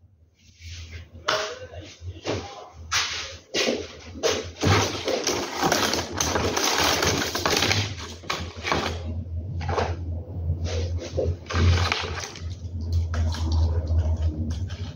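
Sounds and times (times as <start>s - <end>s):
parts rustling and scraping: 3.0s - 10.0s
low hum: 4.1s - 14.9s.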